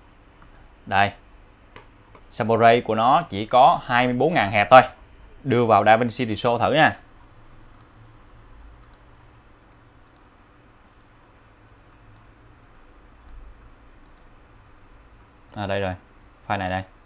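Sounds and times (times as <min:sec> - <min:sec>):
steady low hum and hiss: 0:00.0 - 0:17.0
computer mouse clicks: 0:00.4 - 0:00.7, 0:01.7 - 0:02.3, 0:07.7 - 0:08.0, 0:08.8 - 0:11.2, 0:11.9 - 0:13.4, 0:14.0 - 0:14.3.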